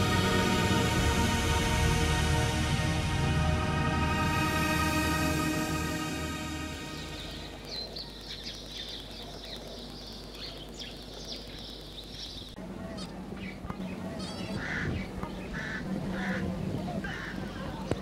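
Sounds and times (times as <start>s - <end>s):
low steady hum: 0.0s - 11.2s
bird chirps and trill: 4.9s - 15.7s
birds twittering chorus: 6.2s - 18.0s.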